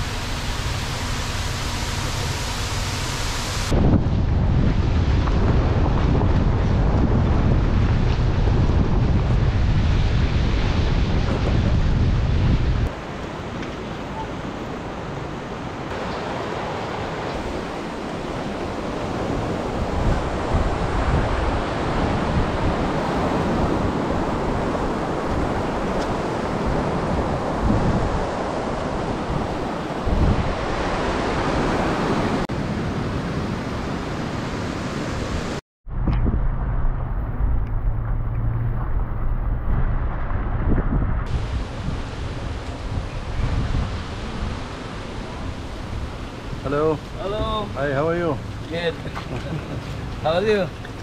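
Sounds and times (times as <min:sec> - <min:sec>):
floodwater rushing: 0:00.0 - 0:03.8, 0:08.3 - 0:35.6, 0:41.3 - 0:51.0
wind buffeting microphone: 0:03.6 - 0:51.0.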